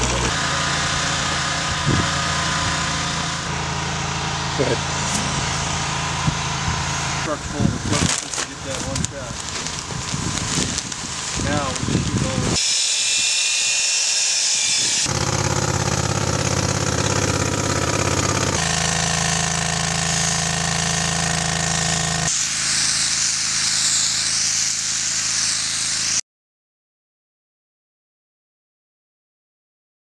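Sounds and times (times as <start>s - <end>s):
spray machine engine running: 0.0s - 26.2s
electric drill whining: 8.2s - 24.1s
spray gun hissing: 10.4s - 26.2s.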